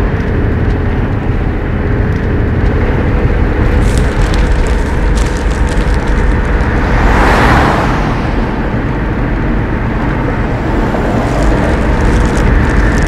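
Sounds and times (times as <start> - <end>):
van engine and road noise: 0.0 - 13.0
vehicle passing whoosh: 5.4 - 13.0.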